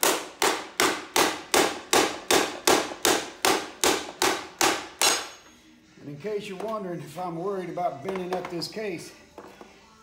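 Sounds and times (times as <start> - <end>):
hammer striking metal: 0.0 - 5.5.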